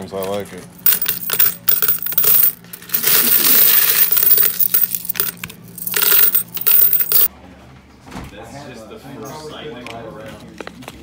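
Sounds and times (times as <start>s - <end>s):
coins jingling poured into bucket: 0.8s - 7.3s.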